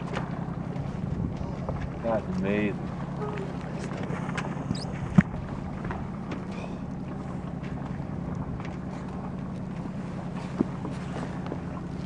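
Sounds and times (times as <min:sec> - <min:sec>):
boat engine humming: 0:00.0 - 0:12.0
wind on microphone: 0:01.0 - 0:02.0, 0:03.2 - 0:06.1.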